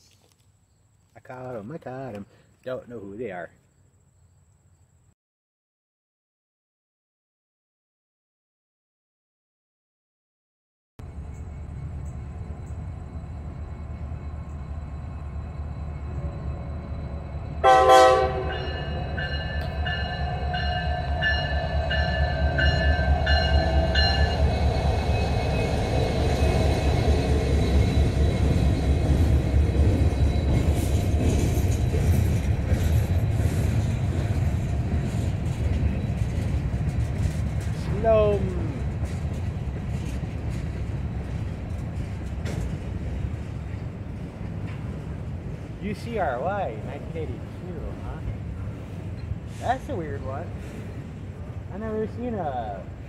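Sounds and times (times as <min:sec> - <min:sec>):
diesel locomotive engine rumble: 0:11.0 - 0:53.0
train horn blast: 0:17.6 - 0:19.0.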